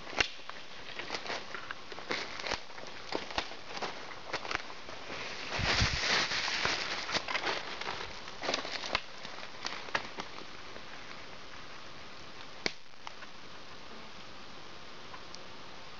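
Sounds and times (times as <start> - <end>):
twigs snapping: 0.0 - 4.7, 5.7 - 10.5, 12.4 - 13.3
footsteps crunching dry leaves: 0.0 - 10.6
faint steady hiss: 0.0 - 15.9.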